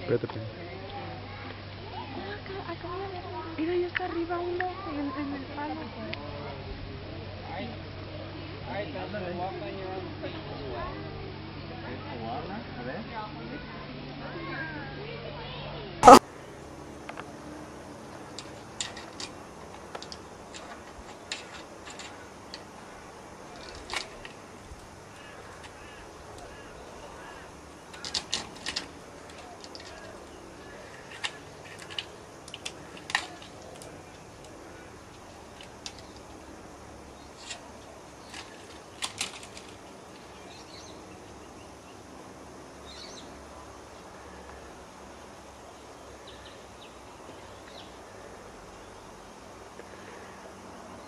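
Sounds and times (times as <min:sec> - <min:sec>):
outdoor background noise: 0:00.0 - 0:51.0
steady hiss: 0:15.3 - 0:51.0
claws scratching on bark and metal: 0:18.0 - 0:40.9
faint bird chirps: 0:42.8 - 0:44.8.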